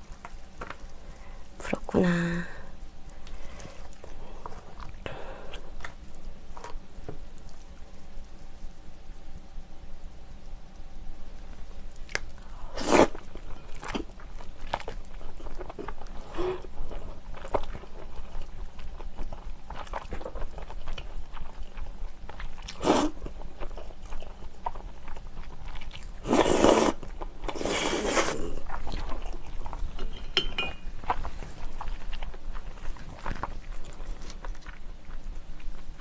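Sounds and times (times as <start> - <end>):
noodle slurping: 12.7 - 13.2, 26.2 - 28.6.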